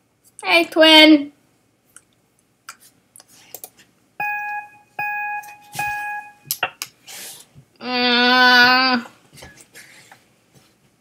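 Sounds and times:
short beeps: 0:04.2 - 0:06.5.

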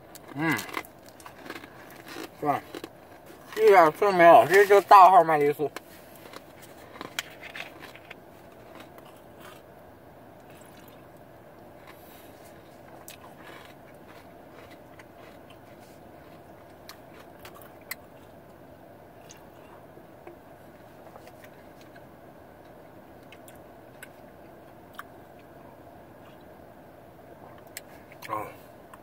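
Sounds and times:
steady low hum: 0:00.0 - 0:29.0
small crunches and clicks: 0:00.1 - 0:03.7, 0:05.6 - 0:09.6
chewing chocolate: 0:00.1 - 0:04.9, 0:05.6 - 0:09.7, 0:10.4 - 0:11.0, 0:11.6 - 0:18.4, 0:24.9 - 0:25.6.

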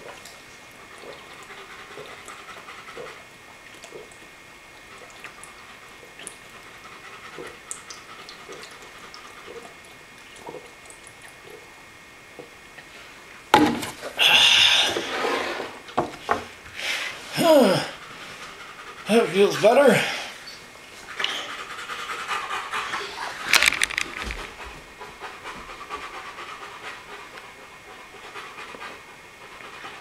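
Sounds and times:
heavy breathing through nose: 0:14.2 - 0:15.6.

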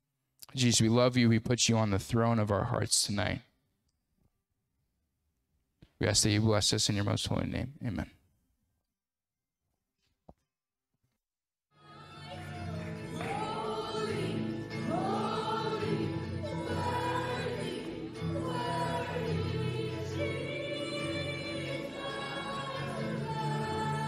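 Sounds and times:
group of voices singing: 0:11.9 - 0:24.0.

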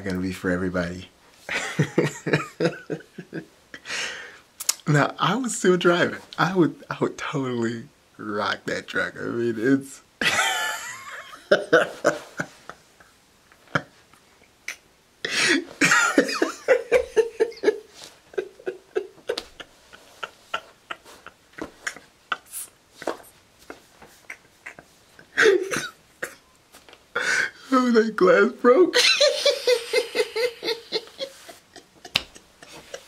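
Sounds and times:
man laughing hard: 0:01.5 - 0:03.5, 0:10.2 - 0:12.9, 0:15.3 - 0:26.5, 0:28.9 - 0:33.0.

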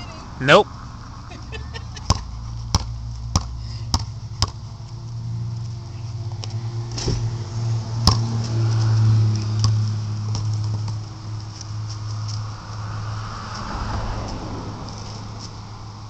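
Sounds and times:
steady low hum: 0:00.0 - 0:12.8
basketball bouncing on hard ground: 0:01.8 - 0:12.4.

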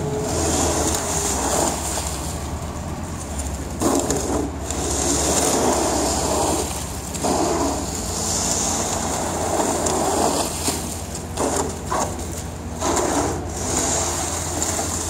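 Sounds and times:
snow pusher scraping slush: 0:00.0 - 0:15.0.

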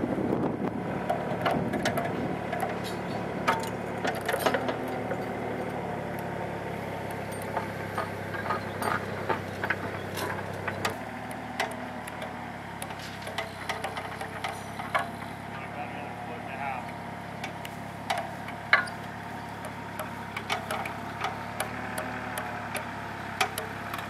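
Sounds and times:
heavy equipment engines running: 0:00.0 - 0:24.0
clicks and knocks: 0:17.4 - 0:24.0.

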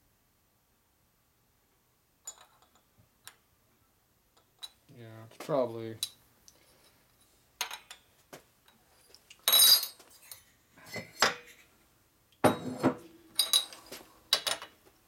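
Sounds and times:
metal parts clanking on workbench: 0:12.4 - 0:14.7.

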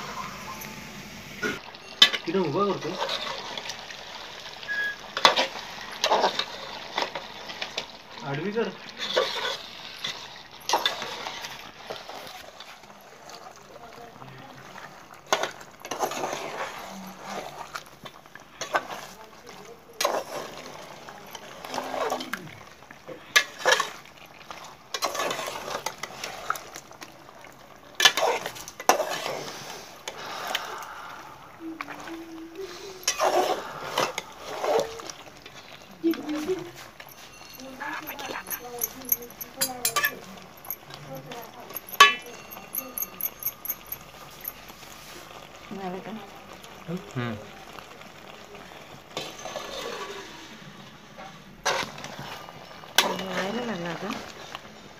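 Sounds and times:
metal spoon scraping a pot: 0:04.8 - 0:07.7, 0:09.0 - 0:12.8, 0:15.3 - 0:17.9, 0:20.0 - 0:22.3, 0:23.3 - 0:24.0, 0:24.9 - 0:26.7, 0:28.0 - 0:30.6, 0:32.7 - 0:35.8, 0:36.8 - 0:44.9, 0:49.2 - 0:50.4, 0:51.6 - 0:54.4.

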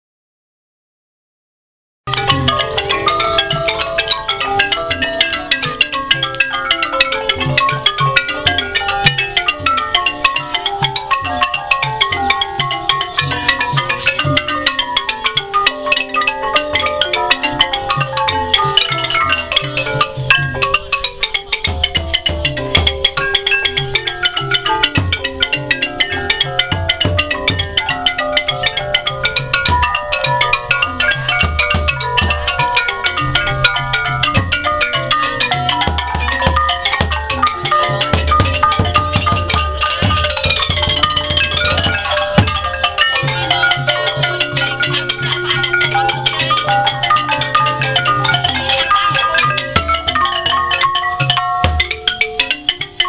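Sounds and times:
xylophones in rapid mallet runs: 0:02.1 - 0:53.0
low drum beat: 0:21.6 - 0:42.9.

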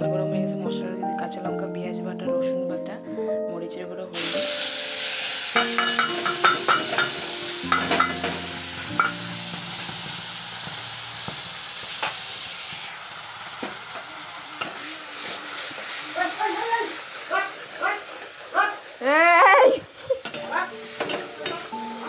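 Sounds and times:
paste sizzling in hot oil: 0:04.2 - 0:22.0
spatula clicking and scraping pan: 0:20.2 - 0:21.8.

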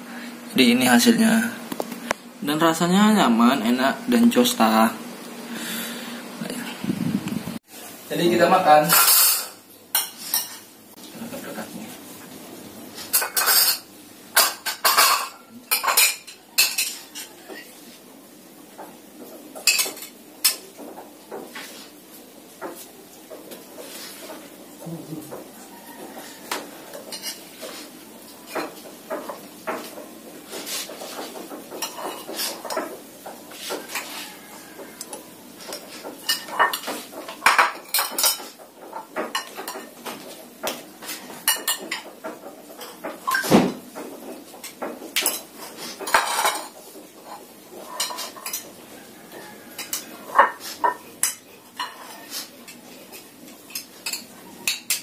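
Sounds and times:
spoons clinking on plates and bowls: 0:08.9 - 0:10.7, 0:13.1 - 0:17.8, 0:19.6 - 0:20.8, 0:25.3 - 0:43.5, 0:44.5 - 0:55.0.

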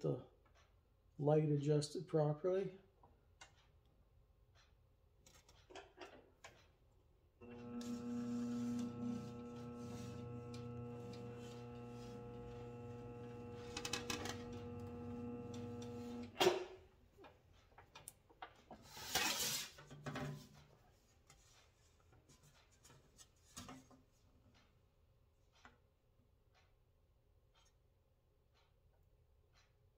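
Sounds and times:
bead roller motor humming: 0:07.4 - 0:16.4
machine stopping knock: 0:07.4 - 0:16.4
sheet metal scraping on bench: 0:18.9 - 0:19.8.

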